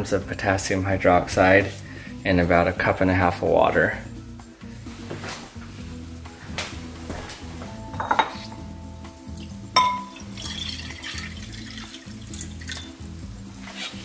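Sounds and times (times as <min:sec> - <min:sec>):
background music: 0:00.0 - 0:14.0
glass bowl clinking on countertop: 0:07.9 - 0:08.6, 0:09.8 - 0:12.9
water pouring into bowl: 0:09.3 - 0:13.0.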